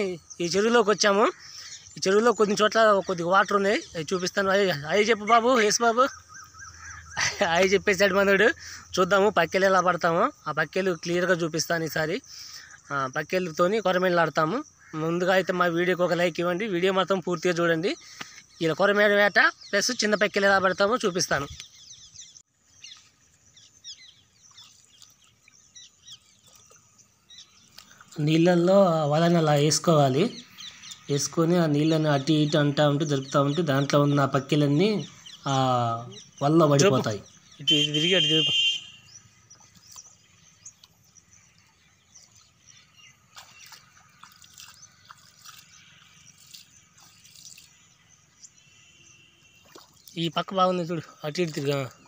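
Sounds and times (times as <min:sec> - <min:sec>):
small birds chirping: 0:00.0 - 0:52.0
water splashing and dripping: 0:24.4 - 0:28.3, 0:39.3 - 0:48.0, 0:49.4 - 0:52.0.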